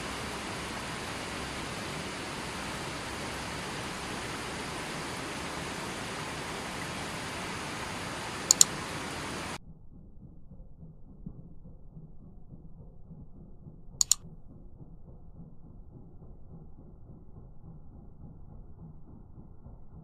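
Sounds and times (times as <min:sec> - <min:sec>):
river rushing over rocks: 0:00.0 - 0:09.6
sharp clicks: 0:00.0 - 0:09.6, 0:14.0 - 0:14.2.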